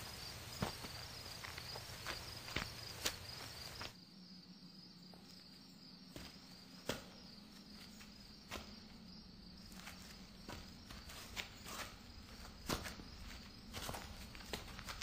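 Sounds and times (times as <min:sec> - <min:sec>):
crickets chirping: 0:00.0 - 0:15.0
sharp footfalls: 0:00.5 - 0:04.0.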